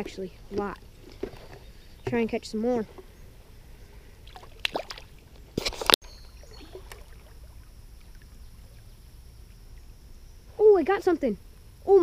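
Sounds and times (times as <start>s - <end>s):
faint creek water: 0.0s - 12.0s
water sloshing in plastic bucket: 0.4s - 3.1s.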